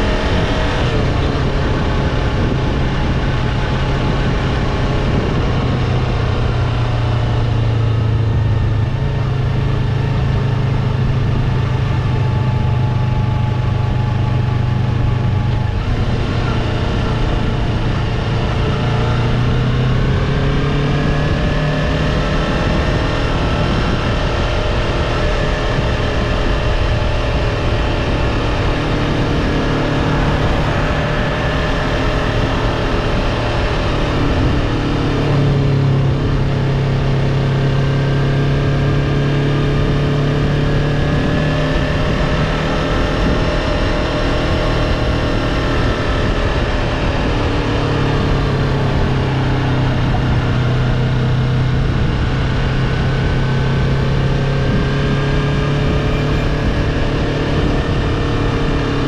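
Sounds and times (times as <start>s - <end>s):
motorcycle engine running: 0.0s - 59.0s
wind and road noise: 0.0s - 59.0s.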